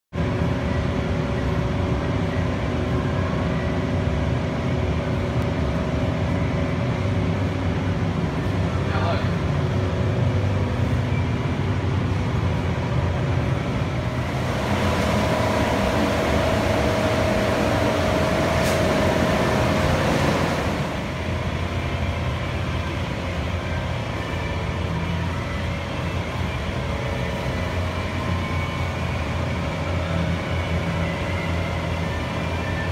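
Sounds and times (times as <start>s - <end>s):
ventilation fans humming: 0.2s - 32.9s.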